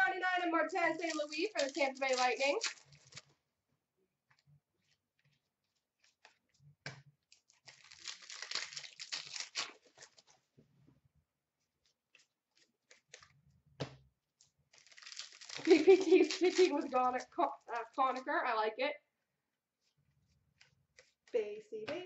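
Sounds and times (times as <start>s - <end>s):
crinkly wrapper tearing: 0.6s - 3.3s, 7.3s - 10.4s, 14.7s - 18.3s.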